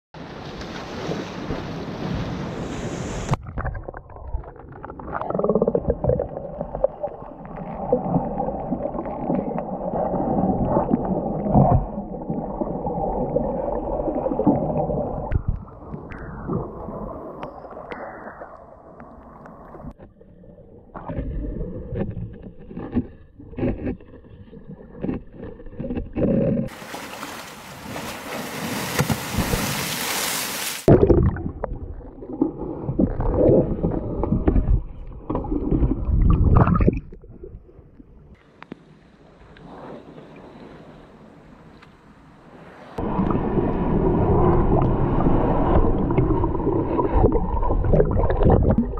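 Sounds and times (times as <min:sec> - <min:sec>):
underwater gurgling and sloshing: 0:00.2 - 0:30.0, 0:30.8 - 0:48.9
knocks underwater: 0:30.9 - 0:37.6.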